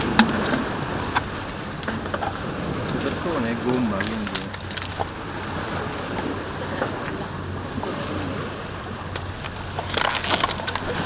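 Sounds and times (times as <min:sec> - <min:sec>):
twigs and debris crackling: 0:00.0 - 0:05.8, 0:09.1 - 0:11.0.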